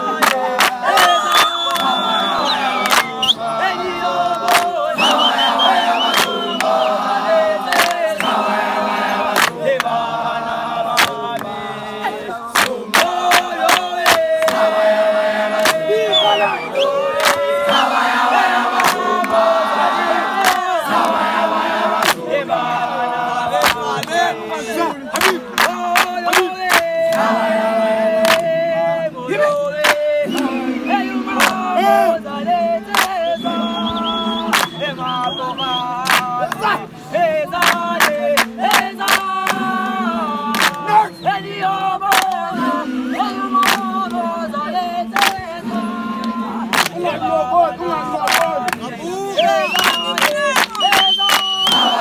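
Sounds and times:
hand claps: 0:00.0 - 0:03.4, 0:04.3 - 0:06.9, 0:07.6 - 0:08.4, 0:09.3 - 0:10.0, 0:10.9 - 0:11.6, 0:12.5 - 0:14.7, 0:15.5 - 0:15.9, 0:17.1 - 0:17.9, 0:18.7 - 0:19.5, 0:20.4 - 0:21.2, 0:22.0 - 0:22.3, 0:23.5 - 0:24.3, 0:25.1 - 0:27.3, 0:28.2 - 0:28.6, 0:29.4 - 0:30.5, 0:31.3 - 0:31.7, 0:32.8 - 0:36.8, 0:37.5 - 0:40.9, 0:42.0 - 0:42.5, 0:43.2 - 0:44.2, 0:45.1 - 0:47.1, 0:48.2 - 0:52.0
crowd chanting: 0:00.0 - 0:52.0
male voices singing together: 0:00.0 - 0:52.0.

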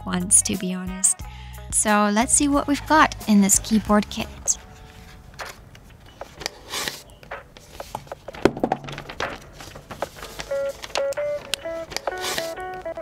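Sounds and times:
background music: 0:00.0 - 0:13.0
packaging knocks and rustling: 0:04.6 - 0:13.0.

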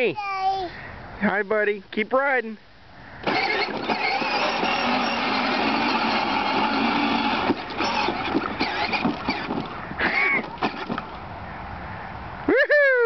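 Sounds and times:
toy vehicle electric motors whirring: 0:03.2 - 0:11.2
rattles and knocks: 0:07.4 - 0:09.8.

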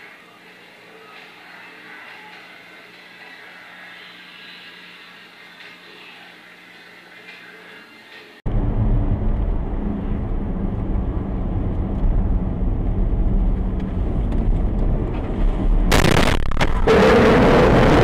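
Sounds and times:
car engine and road noise: 0:08.5 - 0:18.0
sudden loud burst of noise: 0:08.5 - 0:18.0.

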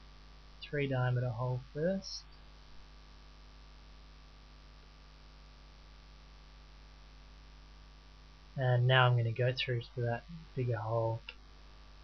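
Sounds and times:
background hiss: 0:00.0 - 0:12.0
faint electrical hum: 0:00.0 - 0:12.0.

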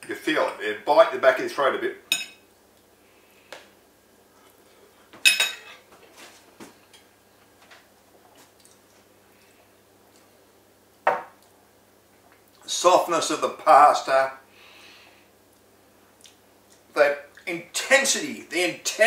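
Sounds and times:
fork clinking and scraping on plate: 0:05.2 - 0:05.9.

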